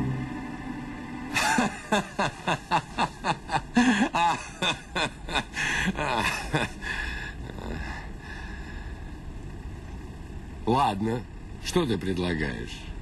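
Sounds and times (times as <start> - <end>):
man laughing: 1.3 - 7.9.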